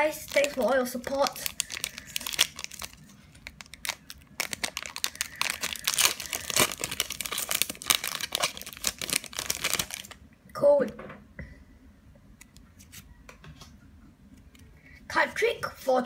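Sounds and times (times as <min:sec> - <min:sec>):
foil wrapper crinkling: 0:00.0 - 0:10.2.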